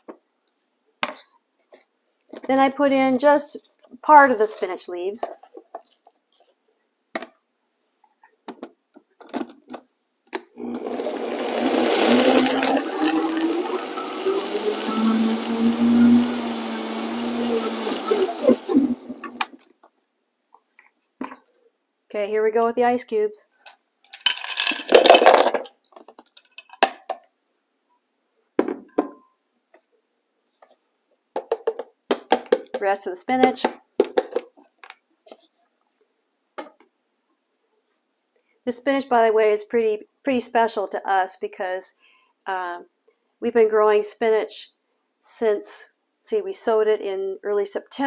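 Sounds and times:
blender motor running: 0:10.6 - 0:19.5
ice cubes clattering into blender: 0:10.7 - 0:15.4, 0:24.2 - 0:25.6.

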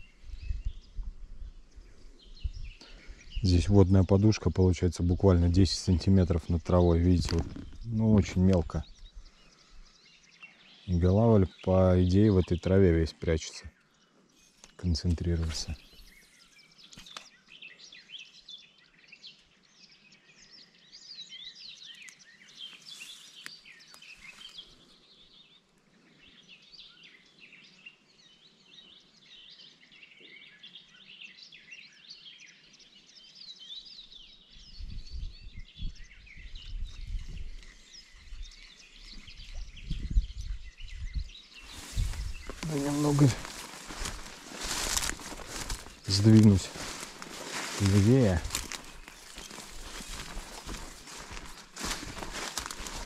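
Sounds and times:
songbirds singing and chirping: 0:00.0 - 0:53.0
low rumble on microphone: 0:34.6 - 0:53.0.

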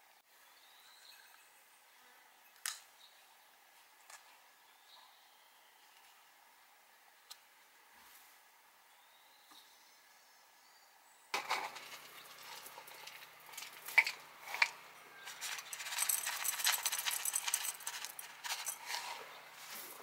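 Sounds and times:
stones rattling into clay pot: 0:11.4 - 0:19.8.

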